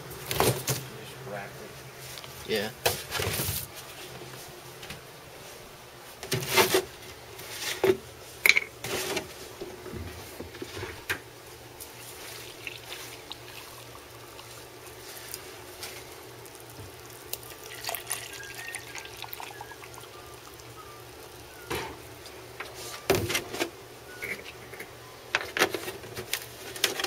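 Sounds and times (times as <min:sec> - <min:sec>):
milk pouring into plastic cup: 0:12.2 - 0:21.4.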